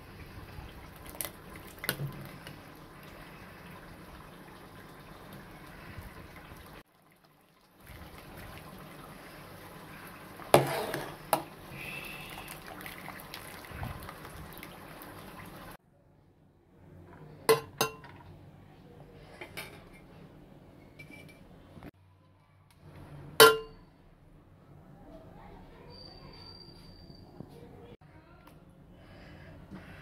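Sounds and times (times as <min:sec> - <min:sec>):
water splashing and draining: 0:00.0 - 0:15.8
metal skimmer clanking on pot: 0:23.4 - 0:23.8.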